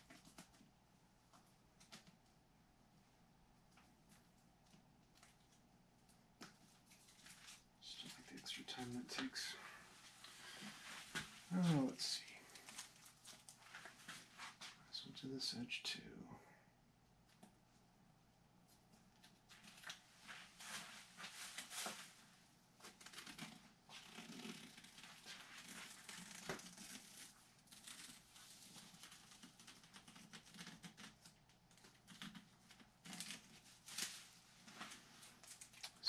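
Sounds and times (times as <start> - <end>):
tape peeling off fabric: 22.8 - 36.0.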